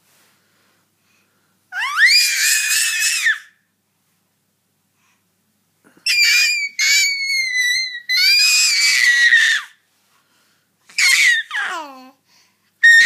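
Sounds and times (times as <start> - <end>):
baby squealing: 1.8 - 3.6, 6.0 - 9.8, 10.9 - 11.8.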